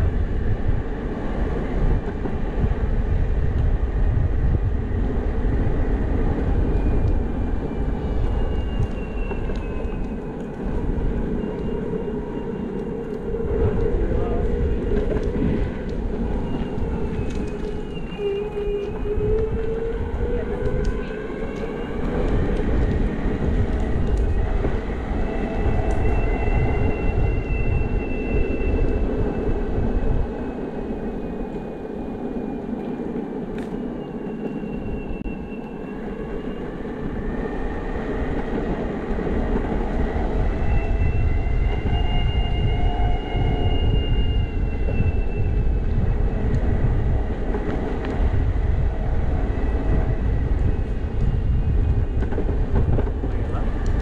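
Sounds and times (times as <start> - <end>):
wind rumble on microphone: 0.0 - 34.1, 34.7 - 54.0
wheels rolling on pavement: 4.4 - 34.7.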